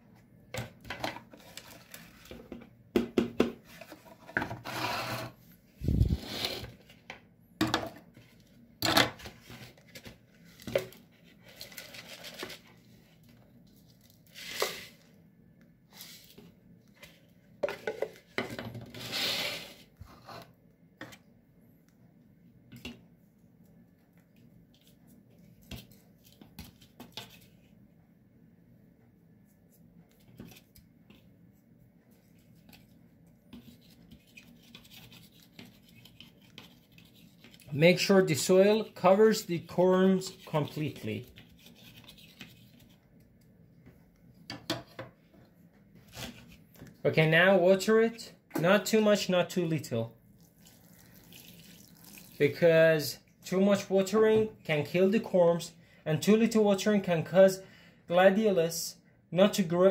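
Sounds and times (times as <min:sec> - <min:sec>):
soil pouring: 0:50.4 - 0:52.6.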